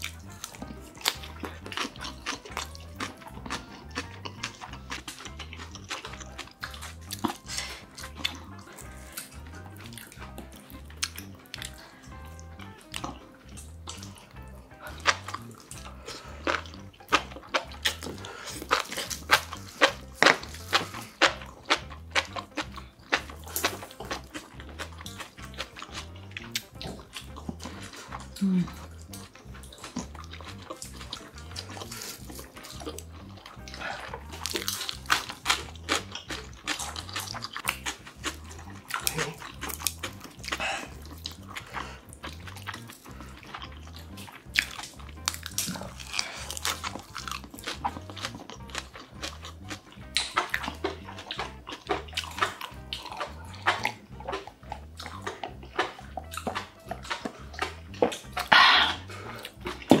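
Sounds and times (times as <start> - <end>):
quiet background music: 0.0 - 60.0
wet chewing and slurping: 0.0 - 60.0
person swallowing: 40.5 - 42.5, 58.1 - 60.0.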